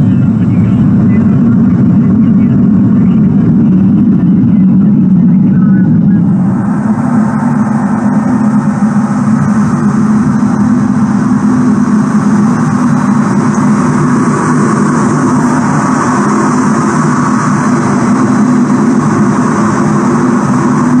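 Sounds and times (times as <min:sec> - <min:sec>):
jet engine roar: 0:00.0 - 0:21.0
rushing air: 0:05.7 - 0:21.0.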